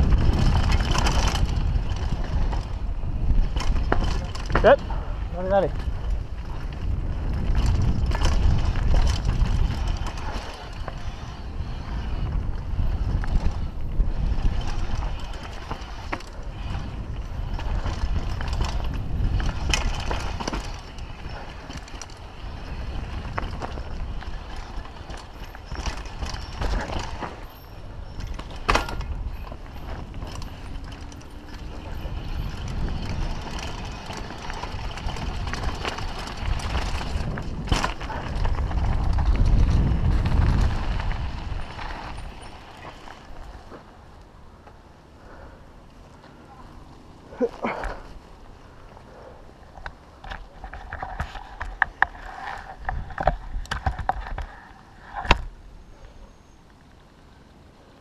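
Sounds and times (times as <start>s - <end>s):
wind buffeting microphone: 0.0s - 43.7s, 47.6s - 55.6s
bike chain and frame rattling: 0.0s - 44.2s, 45.2s - 56.6s
tyres running over dirt and rocks: 0.0s - 58.0s.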